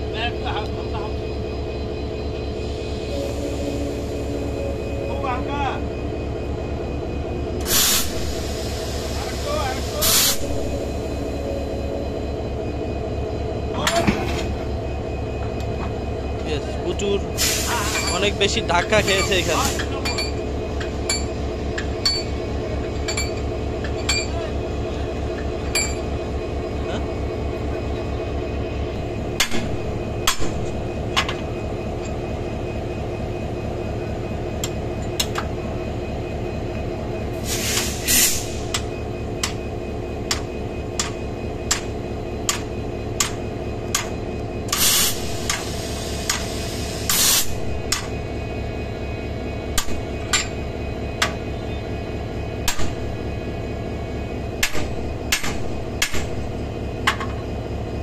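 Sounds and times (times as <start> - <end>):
diesel locomotive idling: 0.0 - 58.0
hammer striking steel coupler: 49.8 - 50.6, 54.6 - 56.4.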